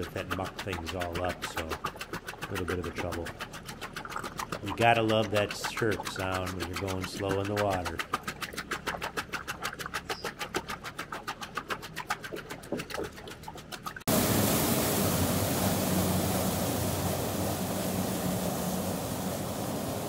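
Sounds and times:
churning water and spray: 0:00.0 - 0:20.0
vehicle engine drone: 0:14.1 - 0:20.0.

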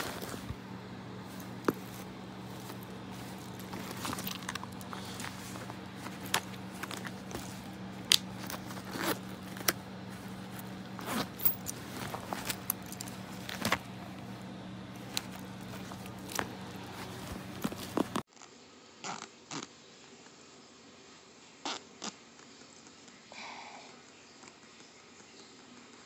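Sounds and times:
handbag material rustling: 0:00.0 - 0:18.2
low hum: 0:00.0 - 0:18.2
metal hardware clinking: 0:10.5 - 0:13.9.

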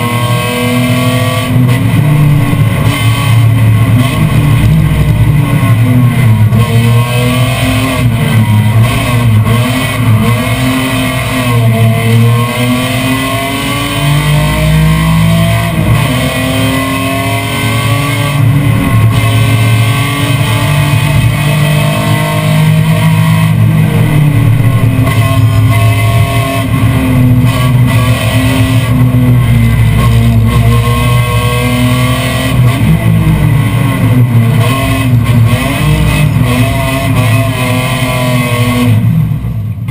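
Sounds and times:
race car engine revving: 0:00.0 - 0:39.9
guitar music: 0:01.4 - 0:11.5, 0:18.0 - 0:35.6.

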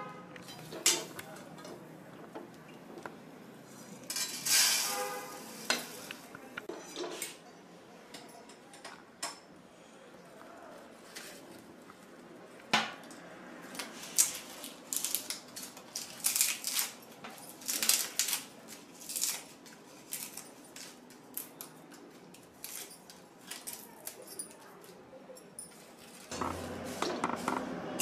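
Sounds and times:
dry leaves crackling and snapping: 0:13.7 - 0:24.7.

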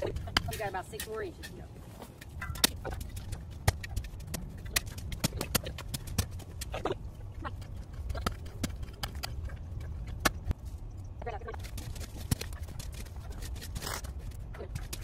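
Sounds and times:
shovel scraping ground: 0:00.0 - 0:07.0, 0:11.5 - 0:15.0.

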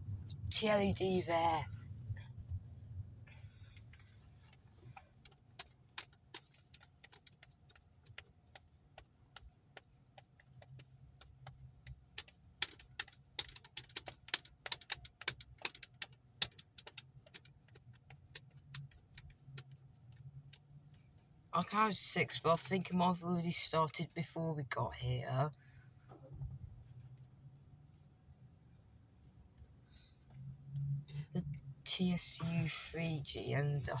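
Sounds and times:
sharp irregular clicks: 0:03.8 - 0:20.7.

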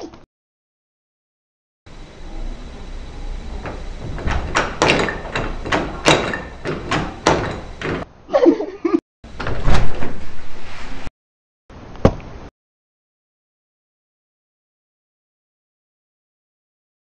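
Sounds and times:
door banging and rattling: 0:01.9 - 0:08.1, 0:09.3 - 0:10.4
wavering creak: 0:02.0 - 0:07.8.

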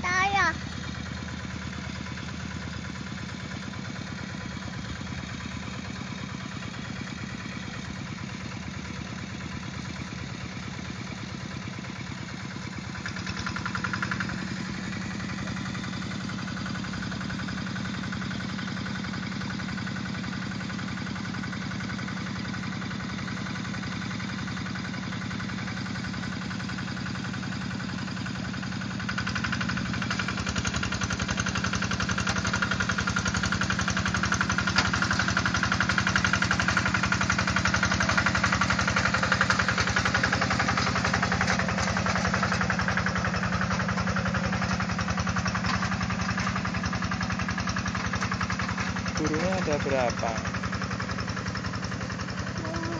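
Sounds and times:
hand tractor engine running: 0:12.9 - 0:22.9, 0:23.6 - 0:52.9.

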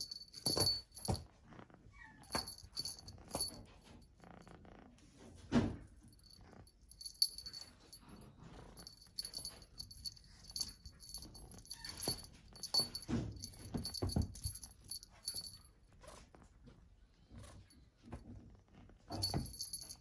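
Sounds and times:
small bell jingling: 0:00.0 - 0:01.3, 0:02.0 - 0:04.0, 0:06.1 - 0:15.8, 0:19.1 - 0:20.0.

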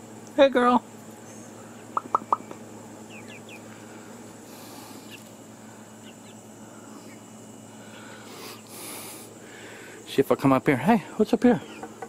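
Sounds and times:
young chickens clucking: 0:01.0 - 0:07.7, 0:11.5 - 0:12.0.

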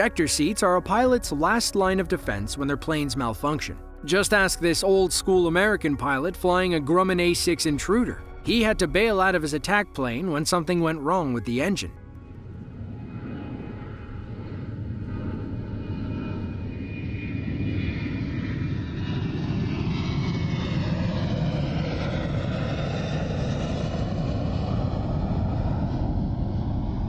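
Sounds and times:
jet engine roar: 0:12.0 - 0:27.0.

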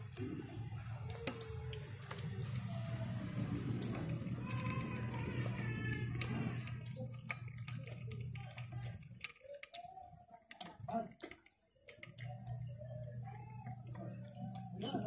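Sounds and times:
sticky clicks and crackles: 0:00.0 - 0:13.5
low steady hum: 0:00.0 - 0:15.0.

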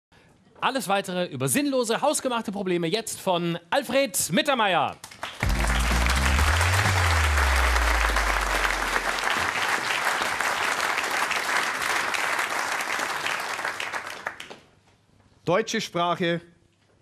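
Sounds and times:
audience applauding: 0:05.0 - 0:14.6
low held musical notes: 0:05.4 - 0:09.3.

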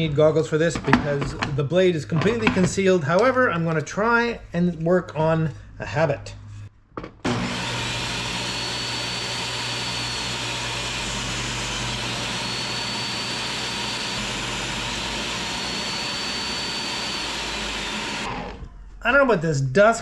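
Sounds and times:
table saw cutting boards: 0:07.2 - 0:18.6.

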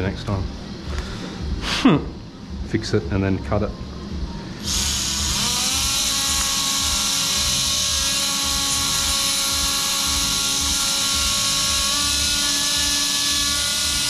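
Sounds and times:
surgical drill high hiss: 0:04.6 - 0:14.0.

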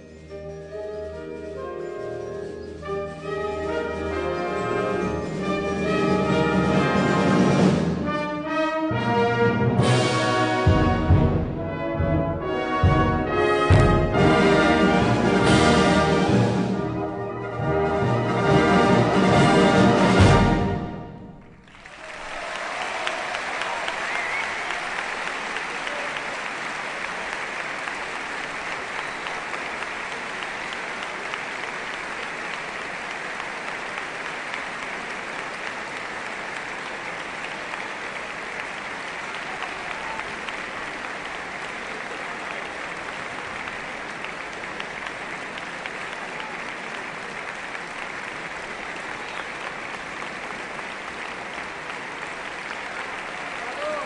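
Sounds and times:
audience applauding: 0:21.4 - 0:54.0.

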